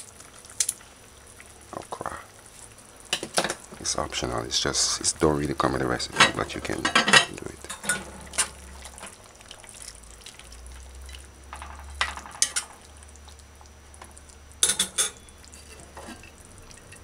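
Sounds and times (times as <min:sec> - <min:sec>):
stew sloshing in pot: 0:05.4 - 0:11.3
spoon clinking against pot: 0:14.6 - 0:17.0.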